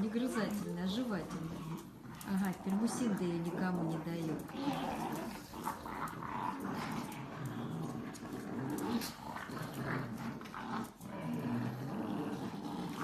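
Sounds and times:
dogs chewing toy: 0:00.0 - 0:13.0
dogs growling: 0:00.0 - 0:13.0.

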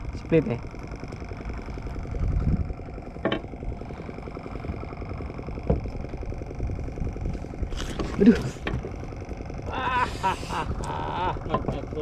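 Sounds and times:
engine running at low speed: 0:00.0 - 0:12.0.

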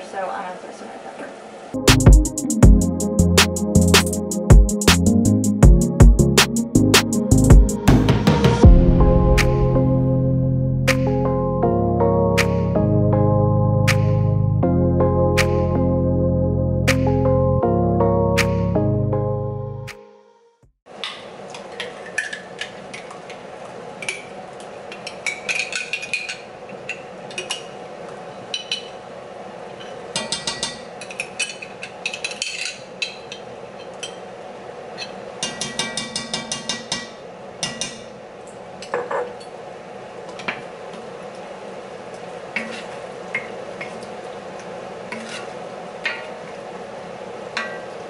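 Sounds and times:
steady low hum: 0:01.6 - 0:16.5.

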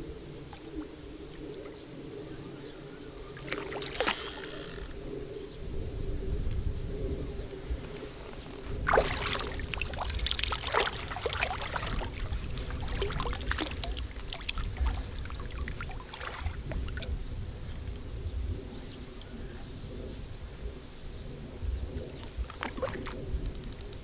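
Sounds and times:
water splashing: 0:03.4 - 0:04.9, 0:08.8 - 0:17.1, 0:22.5 - 0:23.2
steady low rumble: 0:04.4 - 0:24.0.

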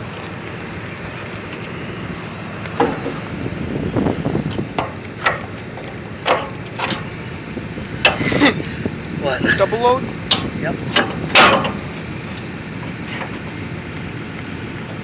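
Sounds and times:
engine running: 0:00.0 - 0:15.0
sharp metal clanks: 0:06.2 - 0:07.1, 0:10.3 - 0:11.9.

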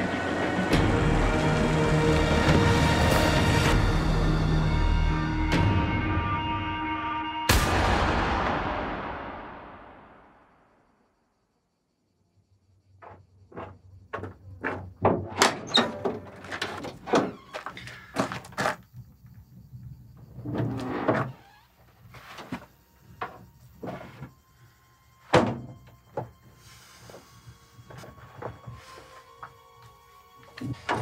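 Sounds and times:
loud thud: 0:07.5 - 0:10.7
metal door scraping open: 0:20.4 - 0:22.4.

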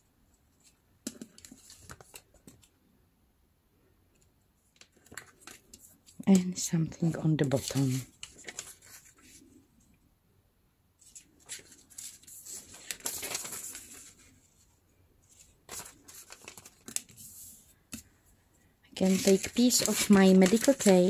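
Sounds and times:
newspaper rustling and tearing: 0:07.0 - 0:09.4, 0:11.0 - 0:14.4, 0:15.3 - 0:17.6, 0:19.0 - 0:21.0.

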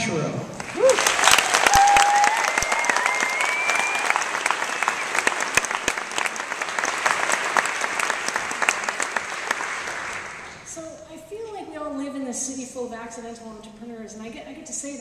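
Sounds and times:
audience applauding: 0:00.5 - 0:10.7.

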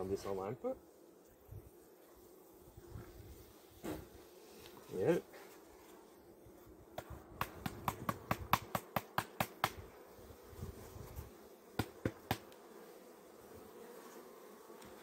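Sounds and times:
honeybees humming: 0:00.0 - 0:15.0
sharp taps on hive box: 0:06.9 - 0:09.9, 0:11.8 - 0:12.6.

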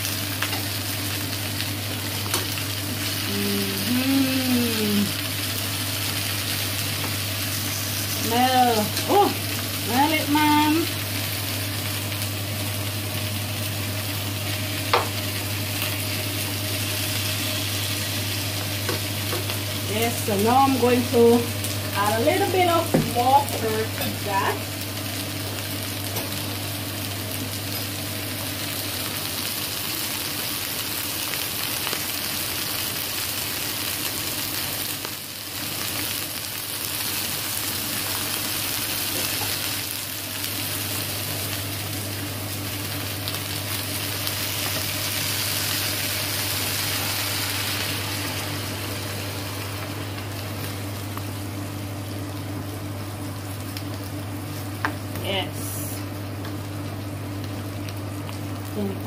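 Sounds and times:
vegetables sizzling in oil: 0:00.0 - 0:59.0
steady low hum: 0:40.0 - 0:59.0.

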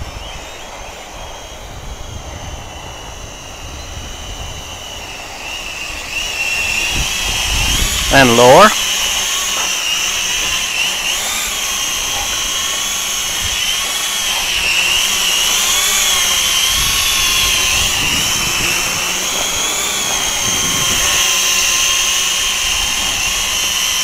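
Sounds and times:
quadcopter motors whining: 0:00.0 - 0:24.0
wind rumble on microphone: 0:01.5 - 0:05.2, 0:05.9 - 0:08.3, 0:16.1 - 0:21.8.

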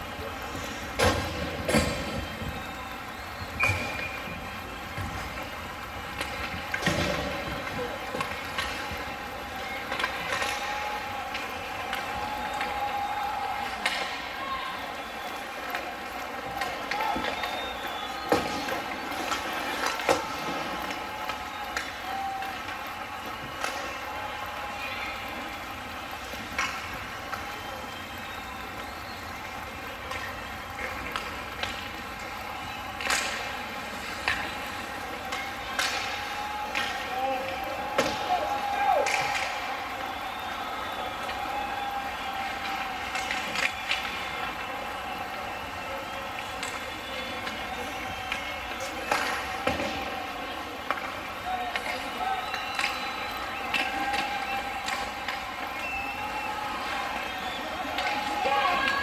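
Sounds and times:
rink background noise: 0:00.0 - 0:59.0
hockey sticks knocking puck: 0:03.4 - 0:12.8, 0:15.6 - 0:22.7, 0:28.8 - 0:39.7, 0:46.4 - 0:57.1, 0:57.8 - 0:59.0.

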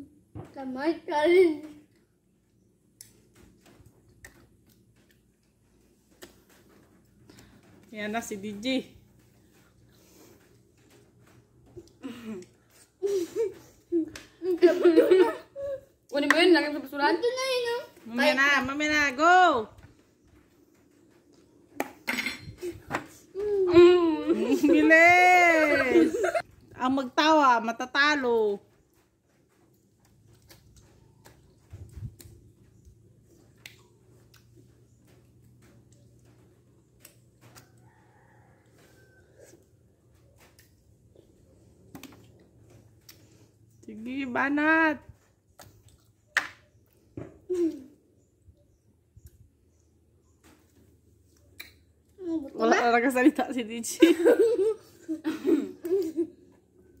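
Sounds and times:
girl giggling: 0:12.0 - 0:15.9, 0:22.1 - 0:26.4, 0:54.0 - 0:56.5
mouths eating soft fruit: 0:28.8 - 0:43.9.

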